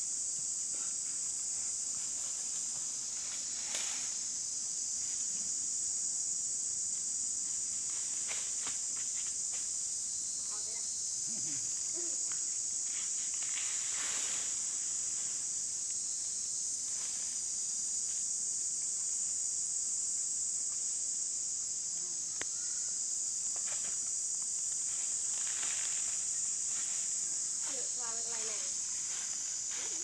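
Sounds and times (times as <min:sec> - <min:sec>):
insect chorus drone: 0:00.0 - 0:30.0.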